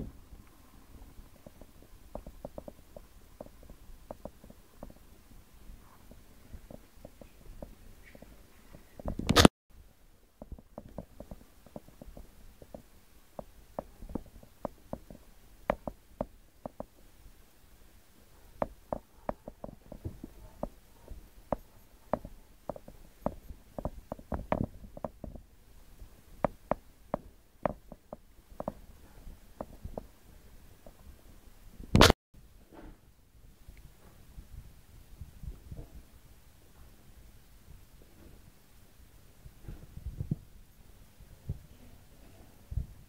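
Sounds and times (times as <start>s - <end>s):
small pops and clicks: 31.9s - 32.2s.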